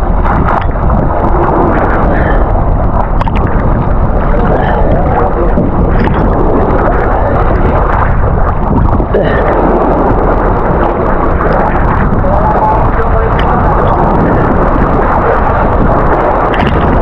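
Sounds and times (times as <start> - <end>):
sea water sloshing and splashing: 0.0 - 17.0
wind rumble on microphone: 0.0 - 17.0
faint voices: 4.2 - 17.0.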